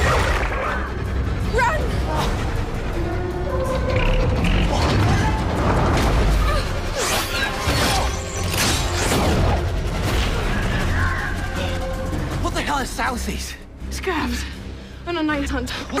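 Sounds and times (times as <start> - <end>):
dramatic film score: 0.0 - 16.0.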